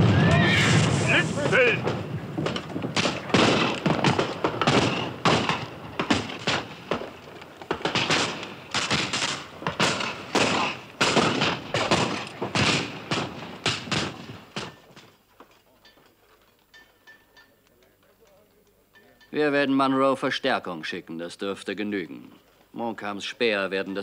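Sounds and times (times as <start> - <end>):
muskets firing: 0.0 - 15.0.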